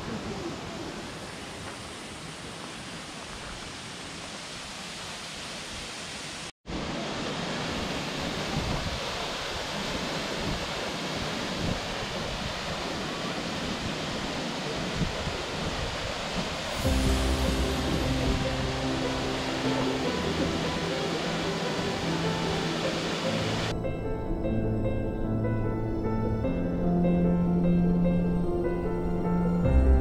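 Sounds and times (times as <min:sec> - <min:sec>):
waterfall rushing: 0:00.1 - 0:23.7.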